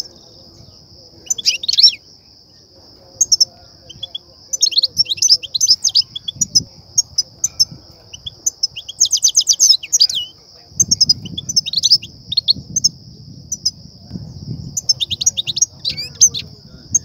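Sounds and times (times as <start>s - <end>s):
steady high-pitched hiss: 0.0s - 17.0s
goldfinch twittering chirps: 1.2s - 2.0s, 3.2s - 12.9s, 14.8s - 17.0s.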